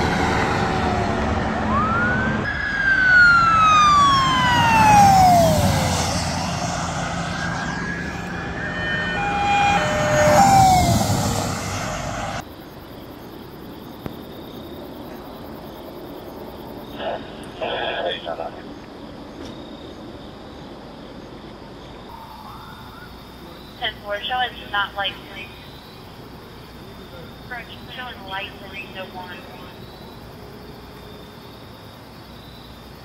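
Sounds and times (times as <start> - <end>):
police sirens wailing: 0.0 - 12.4, 27.5 - 29.8
siren yelping tones: 0.0 - 12.4
engine and road noise: 0.0 - 33.0.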